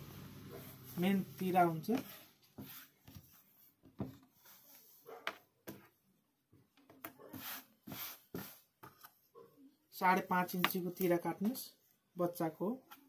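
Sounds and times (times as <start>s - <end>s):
shirt fabric rustling on table: 0.1s - 9.2s.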